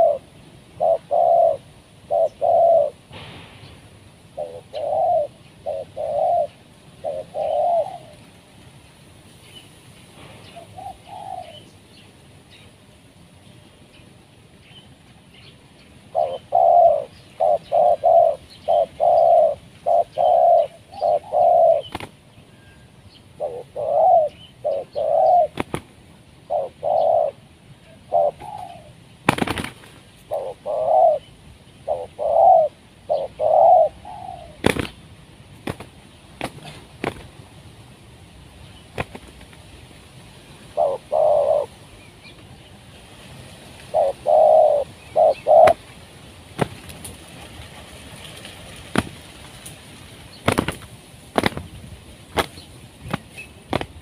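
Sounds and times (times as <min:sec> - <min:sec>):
dove cooing: 0:00.0 - 0:08.5, 0:10.4 - 0:11.7, 0:16.1 - 0:35.0, 0:40.7 - 0:41.9, 0:43.8 - 0:45.9.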